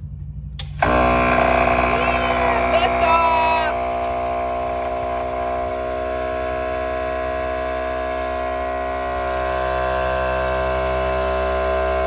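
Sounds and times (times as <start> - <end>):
air compressor whining: 0.0 - 12.0.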